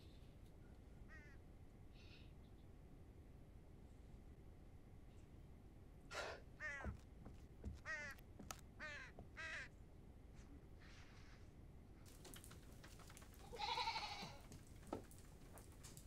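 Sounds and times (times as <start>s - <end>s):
crow cawing: 1.1s - 1.4s, 6.6s - 7.0s, 7.6s - 8.2s, 8.8s - 9.7s.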